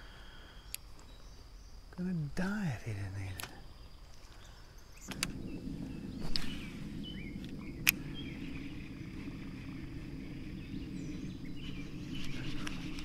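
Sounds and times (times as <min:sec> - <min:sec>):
faint bird chirps: 0:00.0 - 0:13.0
outdoor background noise: 0:00.0 - 0:13.0
sharp click: 0:03.4 - 0:03.6.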